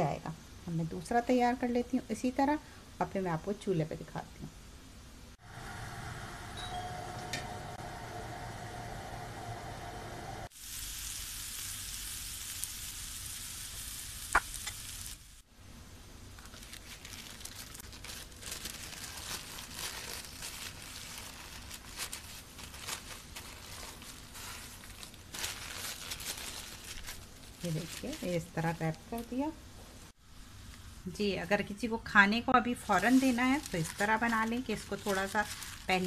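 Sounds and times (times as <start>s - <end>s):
steady hum: 5.3s - 10.5s
food sizzling on a grill pan: 10.5s - 15.4s
paper crinkling: 16.4s - 28.9s, 32.8s - 36.0s.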